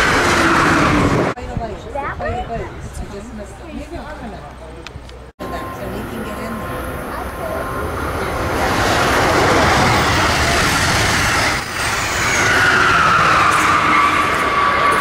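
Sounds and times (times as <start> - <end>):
train wheels rumbling on rail: 6.0 - 15.0.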